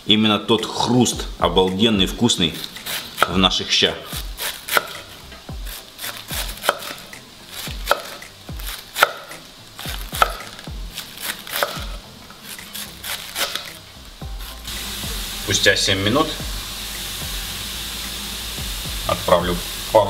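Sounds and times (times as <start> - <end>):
knife slicing cabbage: 2.5 - 3.4, 4.0 - 14.7.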